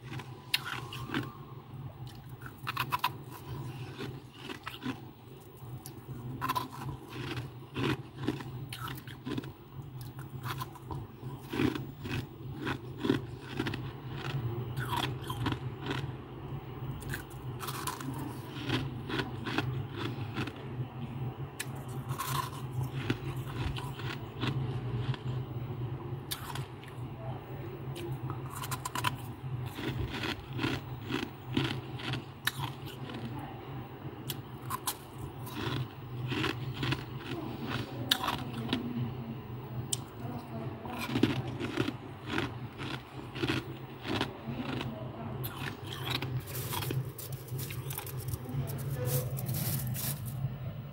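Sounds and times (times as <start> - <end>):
steady low hum: 0.0 - 50.9
frost crunching and scraping: 2.1 - 16.1, 17.0 - 20.6, 21.6 - 25.3, 41.0 - 50.6.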